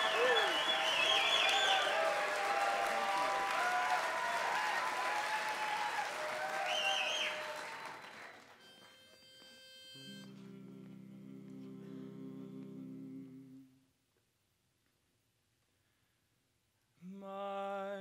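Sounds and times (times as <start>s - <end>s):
sharp whistle: 0.0s - 2.0s, 6.6s - 10.3s
audience applauding: 0.0s - 9.6s.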